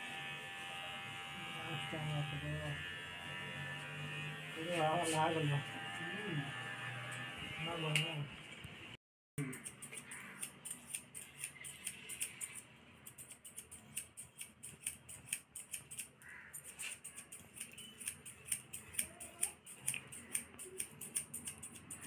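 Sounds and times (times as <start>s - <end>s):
scissors snipping hair: 9.4s - 22.0s.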